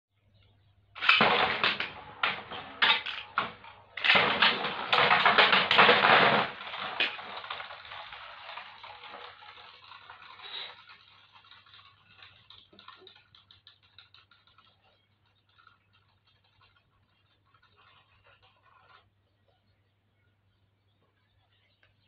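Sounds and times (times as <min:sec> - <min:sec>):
spinning tops clashing and scraping: 0:01.0 - 0:19.0.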